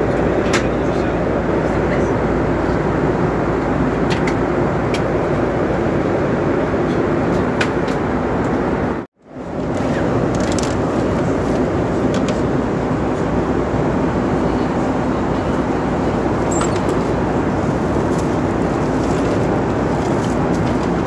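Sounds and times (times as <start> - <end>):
airplane cabin noise: 0.0 - 21.0.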